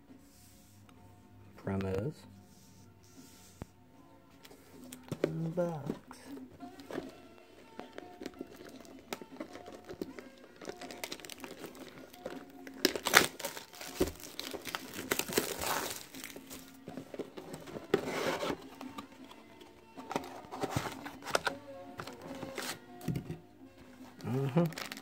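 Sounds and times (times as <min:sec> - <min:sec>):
plastic shrink wrap tearing: 0:08.0 - 0:16.8, 0:24.5 - 0:25.0.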